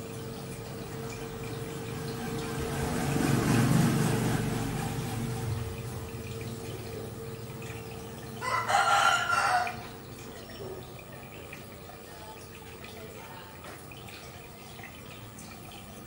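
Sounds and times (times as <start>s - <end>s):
aquarium water trickling: 0.0s - 16.0s
faint steady hum: 4.5s - 16.0s.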